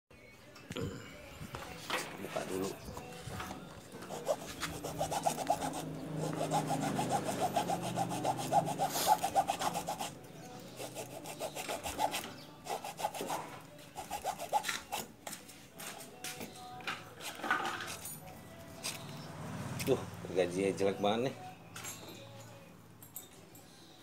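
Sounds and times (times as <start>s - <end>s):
hand saw cutting plastic: 4.0s - 10.1s, 10.8s - 15.1s.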